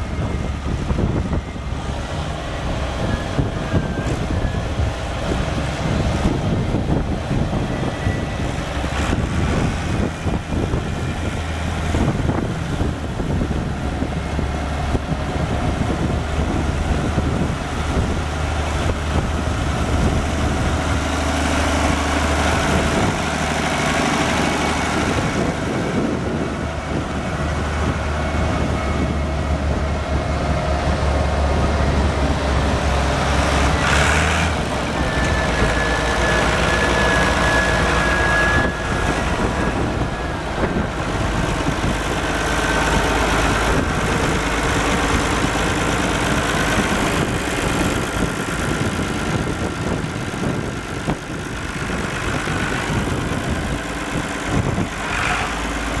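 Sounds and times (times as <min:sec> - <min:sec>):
tractor diesel engine running: 0:00.0 - 0:56.0
high whine: 0:34.5 - 0:56.0.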